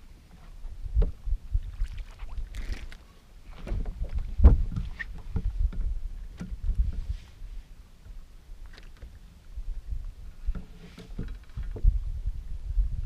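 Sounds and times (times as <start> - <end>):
knocks and thuds on boat deck: 3.6 - 6.6.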